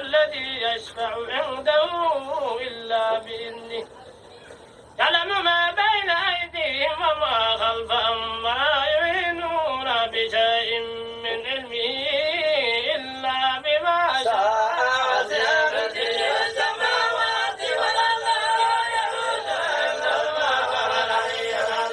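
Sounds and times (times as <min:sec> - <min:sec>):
man chanting melodically: 0:05.0 - 0:21.9
steady held tone: 0:14.2 - 0:21.9.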